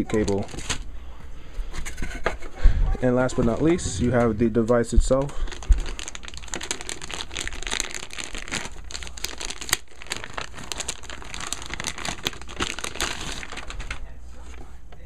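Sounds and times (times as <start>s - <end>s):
plastic bag crinkling: 0.0s - 0.9s, 3.4s - 14.2s.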